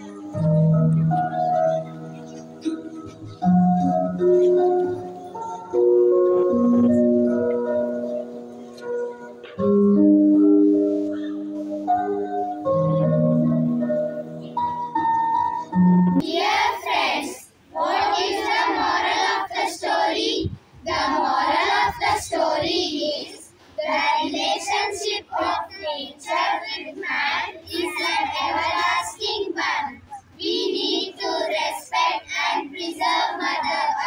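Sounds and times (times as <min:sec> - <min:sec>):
children singing in unison: 0:16.2 - 0:34.0.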